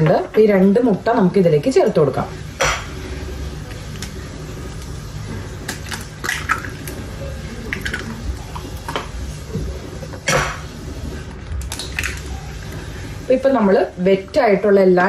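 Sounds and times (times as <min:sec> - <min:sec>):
eggshell cracking on glass bowl: 0:05.7 - 0:07.0.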